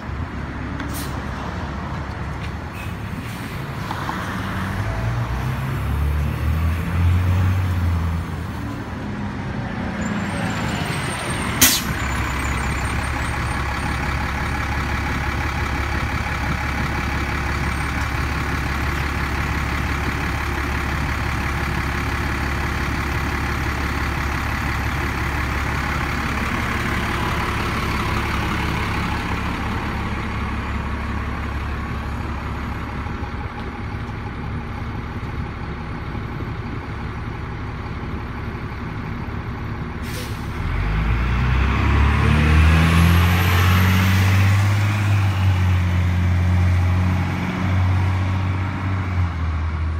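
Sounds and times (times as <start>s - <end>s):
diesel bus engine running: 0.0s - 49.9s
air brakes burst: 11.6s - 12.6s, 40.0s - 40.6s.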